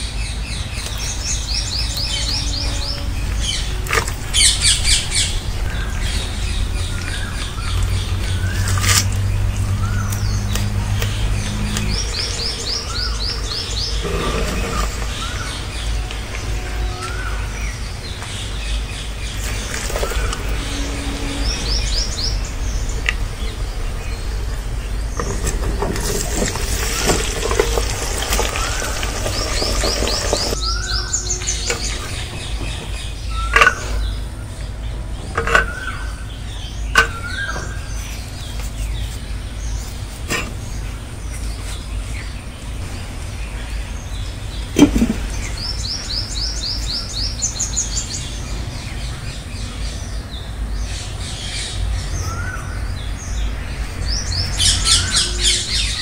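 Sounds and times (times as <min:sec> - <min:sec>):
small birds chirping: 0:00.0 - 0:56.0
low rumble: 0:01.6 - 0:38.2.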